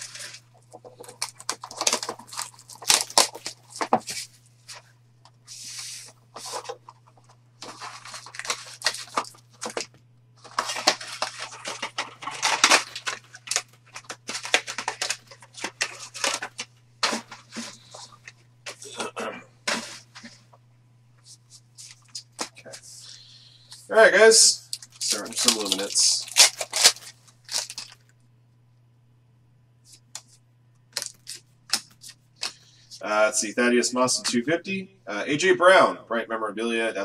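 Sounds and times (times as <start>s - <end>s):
plastic wrapping crinkling and tearing: 0.0s - 4.8s, 5.6s - 19.1s, 24.7s - 28.1s, 31.0s - 32.6s
faint low hum: 0.0s - 37.0s.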